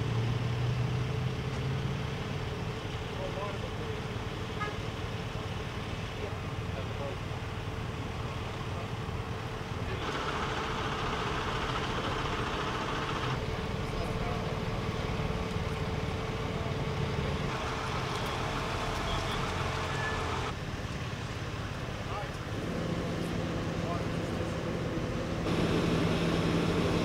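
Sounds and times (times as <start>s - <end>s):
cars passing with tyre noise: 0.0s - 27.0s
low engine rumble: 0.0s - 27.0s.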